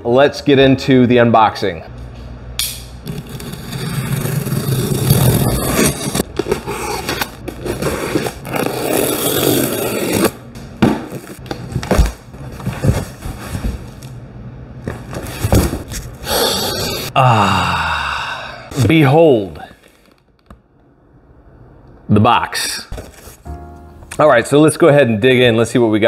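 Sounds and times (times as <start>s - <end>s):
knife slicing packing tape: 3.0s - 10.4s
cardboard and foam handling: 3.3s - 10.3s, 10.9s - 14.1s, 14.8s - 16.2s.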